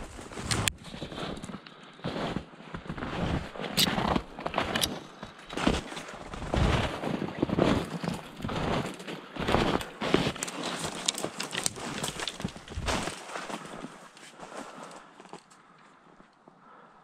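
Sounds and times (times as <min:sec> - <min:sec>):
footsteps crunching through snow: 0:00.0 - 0:15.1
twigs brushing against clothing: 0:03.5 - 0:15.5.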